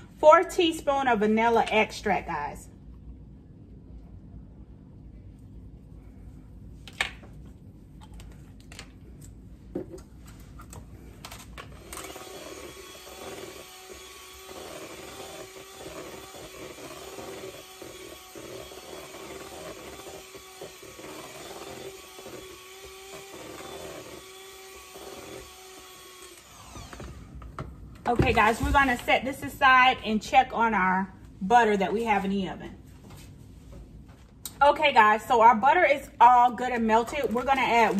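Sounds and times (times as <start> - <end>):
electric hand mixer whirring: 11.6 - 27.4.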